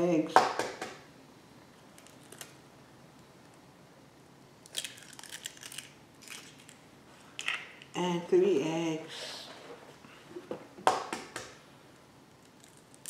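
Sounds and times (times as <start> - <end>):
eggshell cracking: 4.6 - 6.8.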